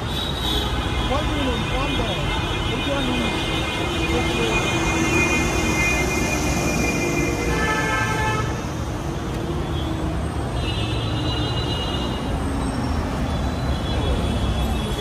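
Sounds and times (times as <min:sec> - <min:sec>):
vehicle horns honking: 0:00.0 - 0:08.7, 0:10.6 - 0:12.3
road traffic rumbling: 0:00.0 - 0:15.0.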